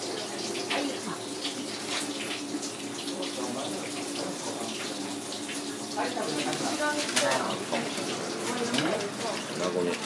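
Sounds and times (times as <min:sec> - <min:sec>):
tap water running: 0:00.0 - 0:10.0.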